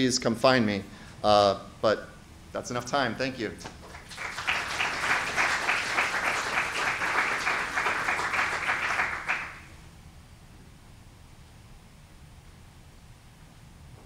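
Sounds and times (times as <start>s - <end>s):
audience applauding: 3.8s - 9.6s.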